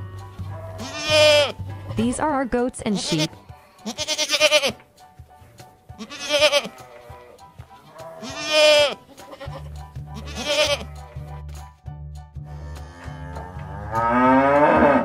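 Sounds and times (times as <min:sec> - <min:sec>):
goats and sheep bleating: 0:00.0 - 0:02.1, 0:02.9 - 0:04.8, 0:05.9 - 0:11.4
low steady music: 0:00.0 - 0:15.0.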